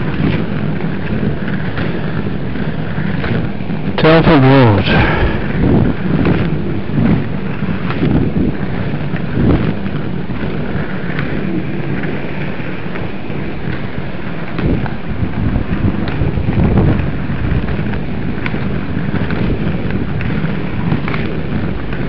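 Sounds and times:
skate wheels rolling on rough path: 0.0 - 22.0
wind on microphone: 0.0 - 22.0.

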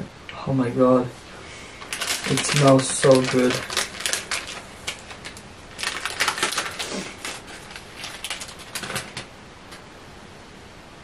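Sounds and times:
plastic packaging crinkling: 1.6 - 9.3.

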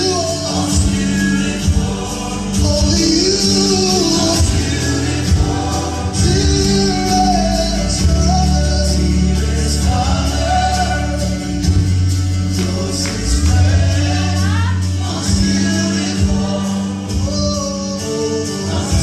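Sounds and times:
slow worship song with singing: 0.0 - 19.0.

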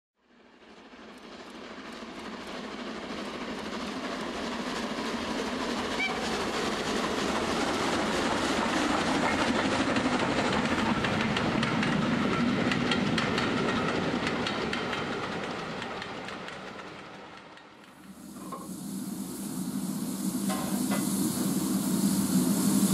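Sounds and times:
model train wheels clicking on rails: 1.1 - 18.7.

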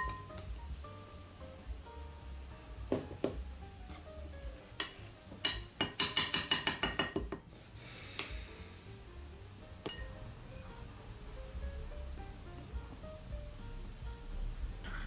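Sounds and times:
whisk clinking against glass bowl: 4.8 - 7.4.

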